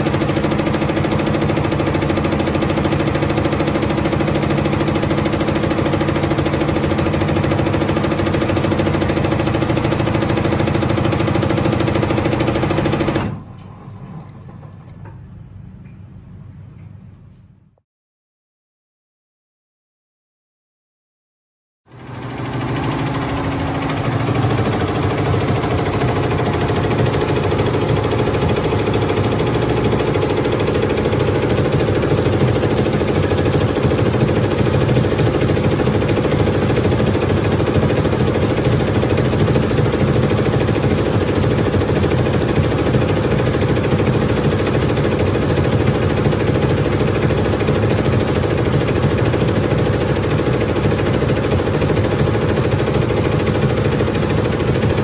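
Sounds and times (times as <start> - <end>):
embroidery machine rattling: 21.9 - 55.0.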